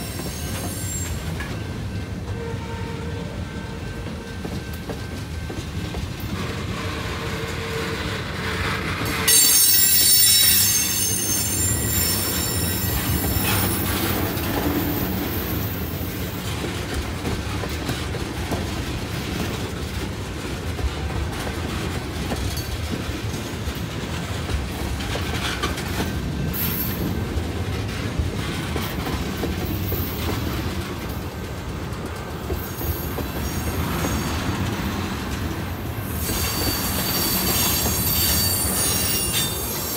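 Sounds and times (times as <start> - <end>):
high-pitched wheel squeal: 0.0 - 1.4, 9.3 - 14.2, 36.2 - 39.9
train wheels rumbling on rail: 0.0 - 39.9
clacking over rail joints: 13.0 - 35.6.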